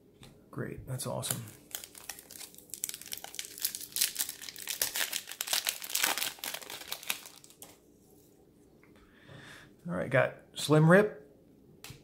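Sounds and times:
foil wrapper crinkling and tearing: 0:01.3 - 0:07.8.

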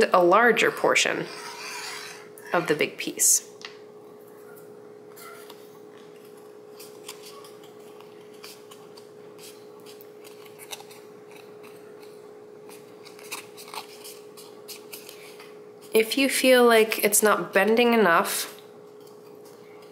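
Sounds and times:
paper crackling and rustling: 0:12.7 - 0:15.5.

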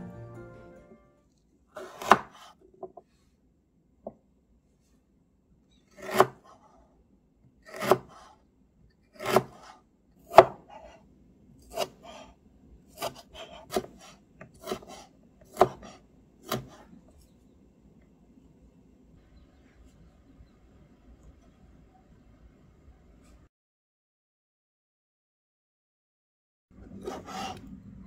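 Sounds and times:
knife cutting on wooden board: 0:01.8 - 0:02.6, 0:05.9 - 0:06.7, 0:07.7 - 0:08.4, 0:09.2 - 0:11.0, 0:11.6 - 0:12.3, 0:12.9 - 0:16.9, 0:27.0 - 0:27.6.

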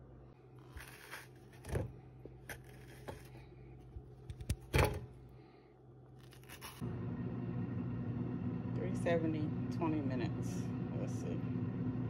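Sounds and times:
knife cutting pie crust: 0:00.6 - 0:05.0, 0:06.2 - 0:06.8.

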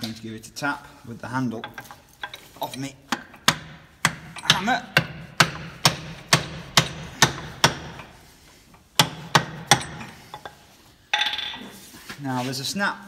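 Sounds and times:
hammer handle tapping metal: 0:01.6 - 0:08.1.

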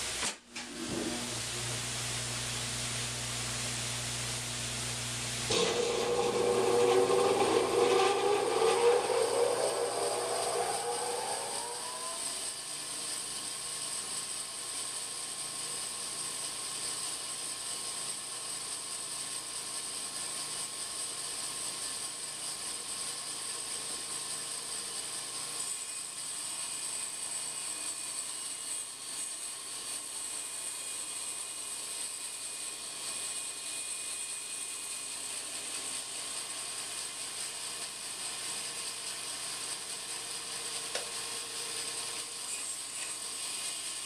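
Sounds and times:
bandsaw motor whine: 0:05.3 - 0:12.6.

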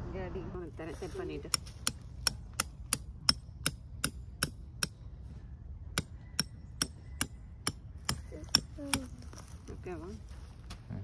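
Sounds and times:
hammer striking tent stake: 0:01.5 - 0:05.0, 0:05.9 - 0:09.1.

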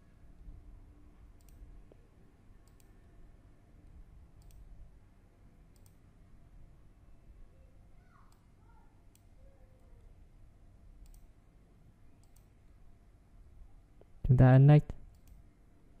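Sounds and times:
low steady background noise: 0:00.0 - 0:16.0
computer mouse clicks: 0:01.4 - 0:02.0, 0:02.6 - 0:03.0, 0:04.4 - 0:04.7, 0:05.7 - 0:06.0, 0:09.1 - 0:09.3, 0:11.0 - 0:11.3, 0:12.2 - 0:12.5, 0:15.1 - 0:15.4.

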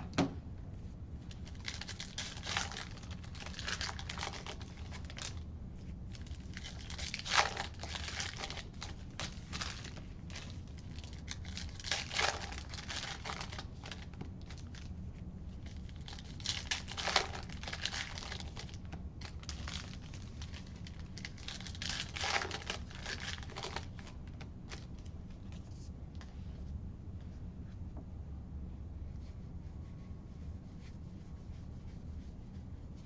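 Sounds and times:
wrapper rustling: 0:01.3 - 0:05.4, 0:06.1 - 0:14.9, 0:15.6 - 0:25.9
wrapper tearing: 0:01.3 - 0:05.4, 0:06.1 - 0:14.9, 0:15.6 - 0:25.1.

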